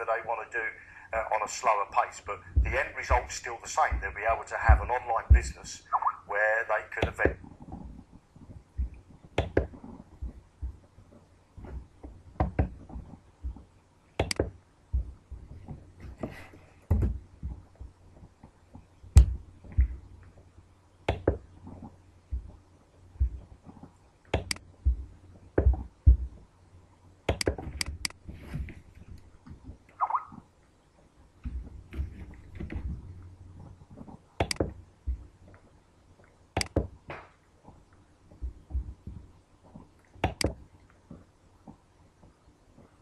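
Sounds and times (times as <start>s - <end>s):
computer mouse clicks: 14.2s - 14.5s, 24.3s - 24.7s, 27.3s - 28.2s, 34.1s - 34.7s, 36.6s - 36.8s, 40.2s - 40.6s.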